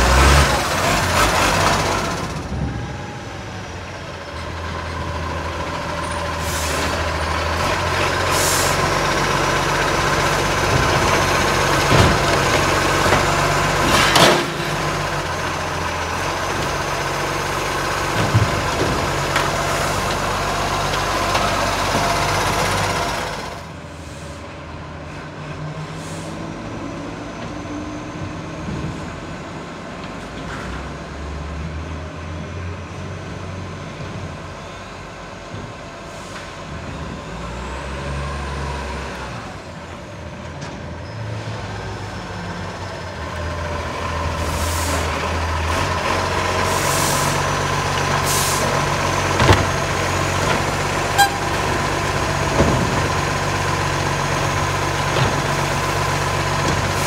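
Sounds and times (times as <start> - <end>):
garbage truck diesel engine: 0.0 - 57.0
air brakes hissing: 6.3 - 7.0, 8.3 - 8.9, 25.9 - 26.5, 46.7 - 47.4, 48.2 - 48.8.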